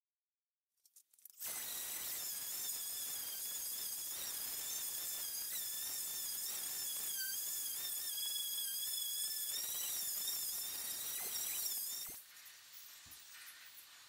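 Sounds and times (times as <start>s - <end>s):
orbital sander whine: 1.4s - 12.2s.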